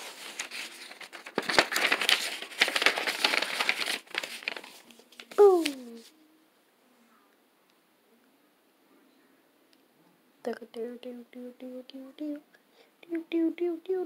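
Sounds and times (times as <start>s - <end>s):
paper rustling and crinkling: 0.0s - 6.1s.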